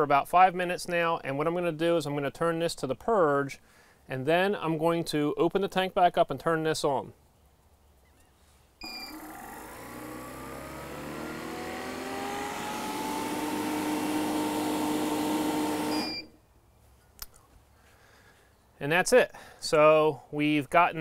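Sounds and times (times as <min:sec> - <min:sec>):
machine beep: 0:08.8 - 0:09.4, 0:15.9 - 0:16.4
recovery machine running rising pitch: 0:08.8 - 0:16.3.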